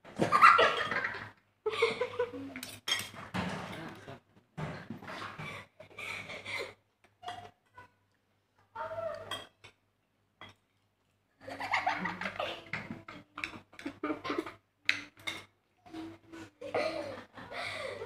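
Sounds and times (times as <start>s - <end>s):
cutlery clinking on plates: 2.6s - 4.0s
child laughing: 11.4s - 12.9s, 16.0s - 18.0s.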